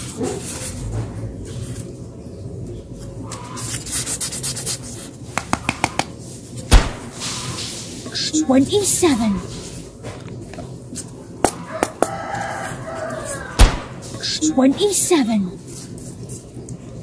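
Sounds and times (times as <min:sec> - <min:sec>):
polystyrene foam rustling: 0:06.4 - 0:09.9
sharp knock: 0:06.7 - 0:07.3, 0:13.6 - 0:14.1.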